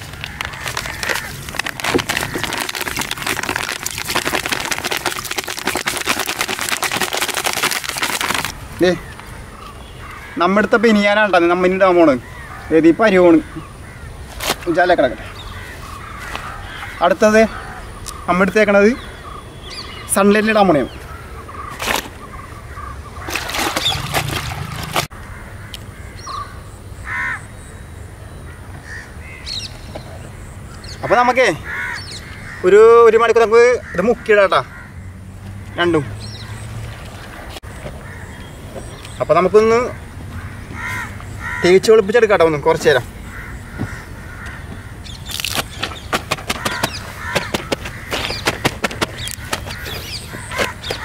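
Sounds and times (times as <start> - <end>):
powder pouring into water: 0.0 - 8.5, 23.3 - 25.1
rustling noise: 0.0 - 8.6
bird call: 19.0 - 25.1, 43.3 - 51.0.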